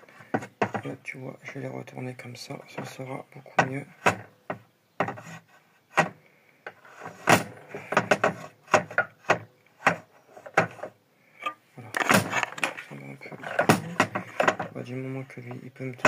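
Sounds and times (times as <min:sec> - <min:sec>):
plastic parts knocking on table: 0:07.2 - 0:10.9, 0:12.0 - 0:14.8.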